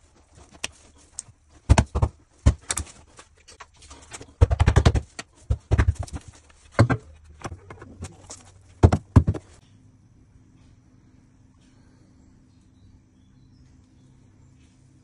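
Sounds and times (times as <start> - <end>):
wooden planks knocking: 1.6 - 3.0, 4.0 - 9.6.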